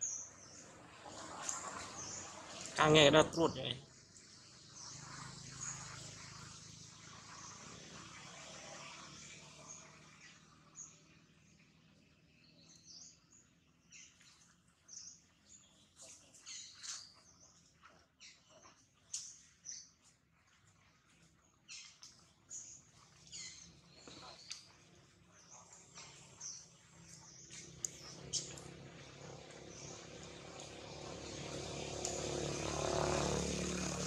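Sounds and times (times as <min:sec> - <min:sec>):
birds chirping: 0:00.0 - 0:03.8, 0:21.4 - 0:34.0.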